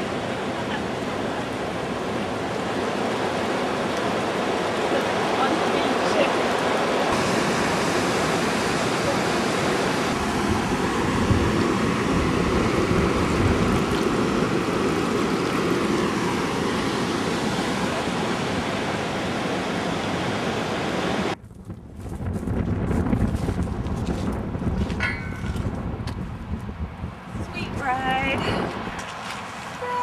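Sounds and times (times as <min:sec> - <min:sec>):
rushing floodwater: 0:00.0 - 0:21.4, 0:27.6 - 0:30.0.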